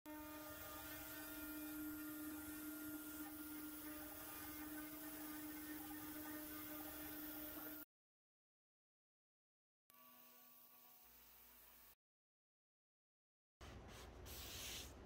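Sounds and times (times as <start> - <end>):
router spindle carving wood: 0.1 - 7.8.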